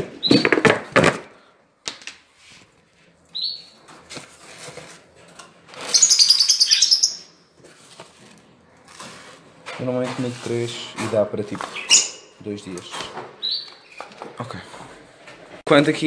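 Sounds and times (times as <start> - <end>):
canaries chirping: 3.3 - 3.8, 5.8 - 7.4, 11.6 - 12.4, 13.4 - 14.2.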